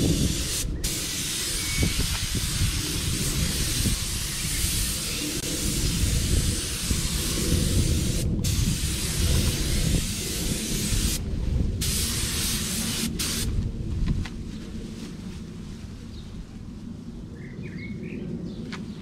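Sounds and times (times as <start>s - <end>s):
paint spray gun hissing: 0.0s - 11.2s, 11.8s - 13.5s.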